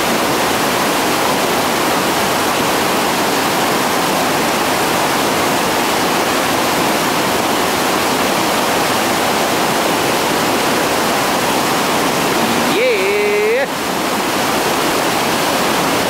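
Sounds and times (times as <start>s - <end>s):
whitewater rapids roaring: 0.2s - 16.0s.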